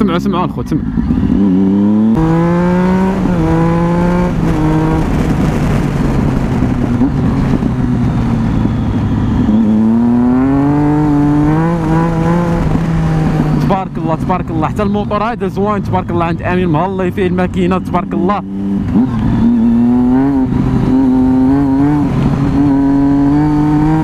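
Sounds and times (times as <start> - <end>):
motorcycle engine revving: 0.0 - 24.0
wind rush: 1.3 - 14.5.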